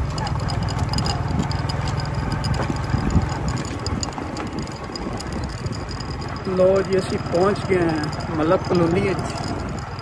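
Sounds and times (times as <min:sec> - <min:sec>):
small engine chugging: 0:00.0 - 0:10.0.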